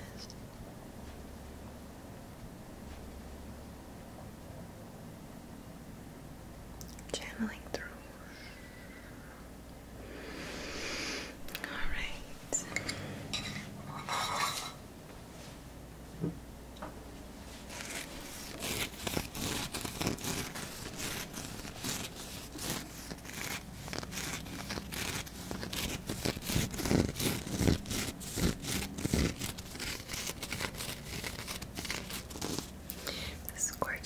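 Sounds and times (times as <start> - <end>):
fingertips scratching on crystal: 17.7 - 32.8.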